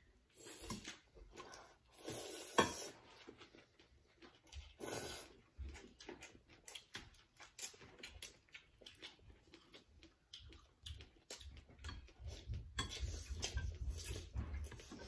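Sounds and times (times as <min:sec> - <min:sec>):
chewing and slurping noodles: 0:00.1 - 0:15.0.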